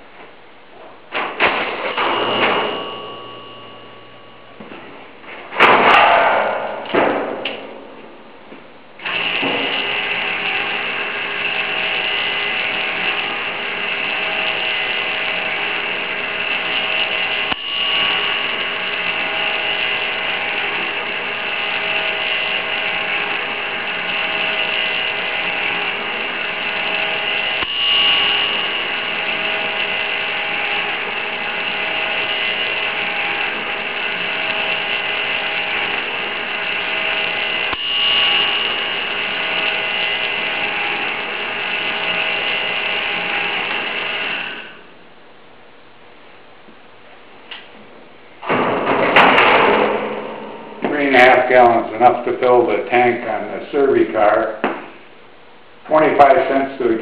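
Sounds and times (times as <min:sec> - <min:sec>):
pump motor humming: 0:09.0 - 0:44.8.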